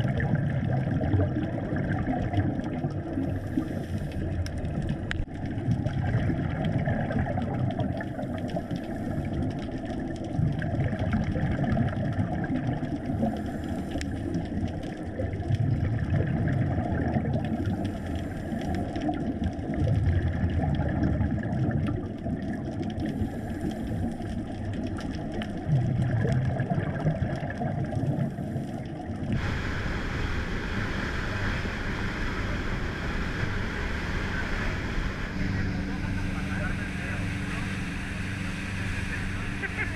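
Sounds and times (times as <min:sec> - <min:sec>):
bubbles gurgling underwater: 0:00.0 - 0:39.9
diver regulator breathing: 0:03.2 - 0:04.5, 0:08.1 - 0:09.6, 0:13.1 - 0:14.6, 0:17.6 - 0:19.1, 0:23.0 - 0:24.5, 0:28.2 - 0:33.2
boat motor running: 0:29.4 - 0:39.9
rushing spray and wind: 0:29.4 - 0:39.9.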